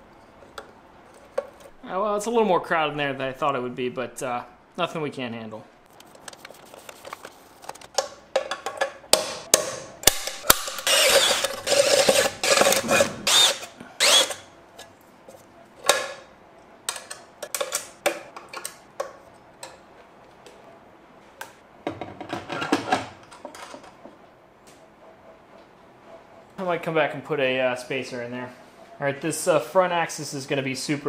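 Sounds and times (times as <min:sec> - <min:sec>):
clicks and knocks of tools: 0:16.9 - 0:19.9.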